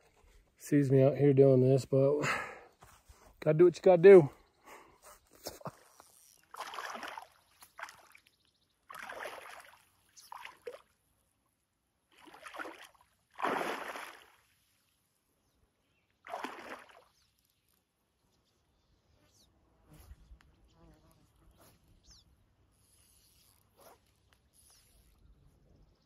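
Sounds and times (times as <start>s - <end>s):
water splashing and sloshing: 6.4s - 11.1s, 12.0s - 15.0s, 16.2s - 17.5s.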